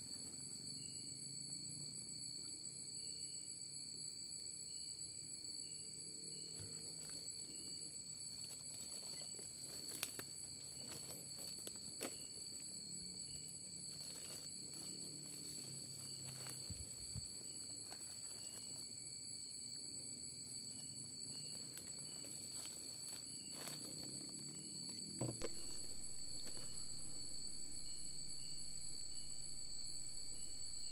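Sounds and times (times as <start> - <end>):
night insects droning: 0.0 - 30.9
footsteps rustling through undergrowth: 13.8 - 18.9, 21.4 - 24.2.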